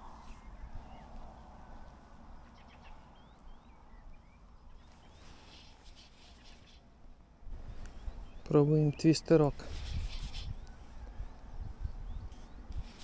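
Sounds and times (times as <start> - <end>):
faint bird chirps: 0.0 - 6.9
rustle: 0.0 - 13.0.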